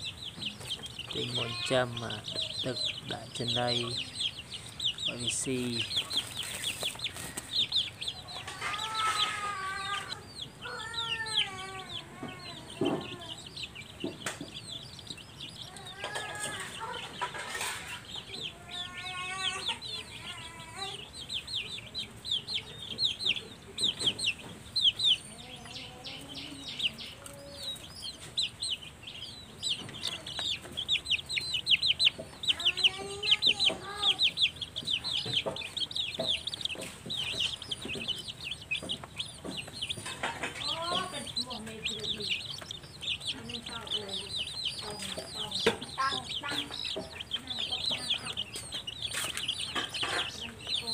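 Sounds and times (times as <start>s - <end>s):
chicks peeping: 0.0s - 50.9s.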